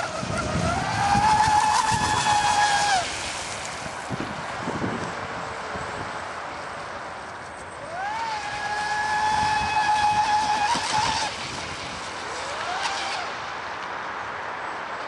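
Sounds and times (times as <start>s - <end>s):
model boat motor whining: 0.0s - 3.1s, 7.8s - 13.8s.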